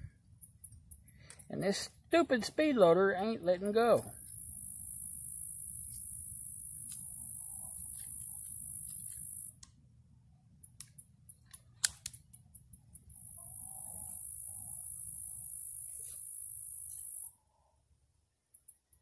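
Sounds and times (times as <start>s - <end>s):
high-pitched hiss: 3.8s - 9.6s, 13.1s - 17.3s
revolver loading metallic clicks: 10.6s - 13.1s.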